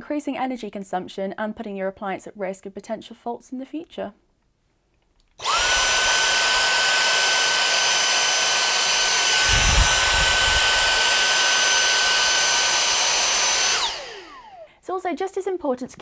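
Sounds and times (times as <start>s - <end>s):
handheld vacuum motor whine: 5.4s - 14.7s
low rumble: 9.4s - 11.0s.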